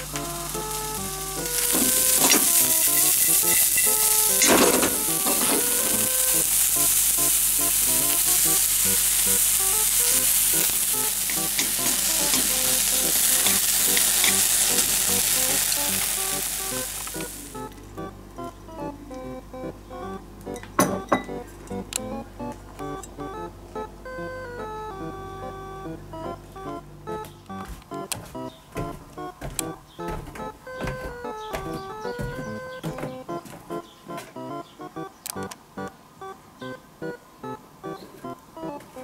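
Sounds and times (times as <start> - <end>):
bean sprouts sizzling in a wok: 0.0 - 17.6
wok stirring strokes: 0.4 - 17.6.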